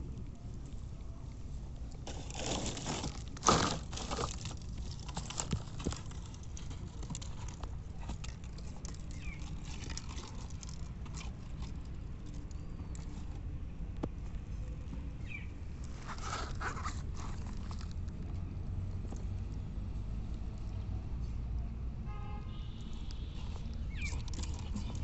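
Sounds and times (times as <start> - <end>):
fishing gear rustling: 2.0 - 13.4.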